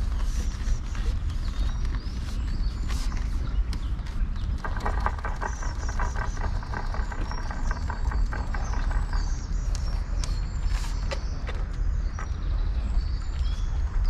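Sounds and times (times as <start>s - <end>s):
small birds chirping: 0.0s - 14.0s
wind on microphone: 0.0s - 14.0s.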